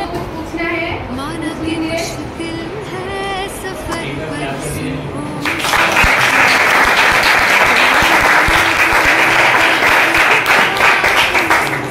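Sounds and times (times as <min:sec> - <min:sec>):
crowd applauding: 0:05.4 - 0:11.9.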